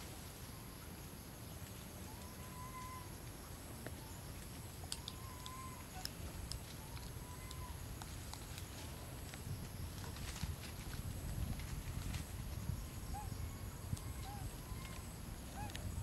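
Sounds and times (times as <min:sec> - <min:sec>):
soft whistle-like animal call: 0:02.1 - 0:03.1.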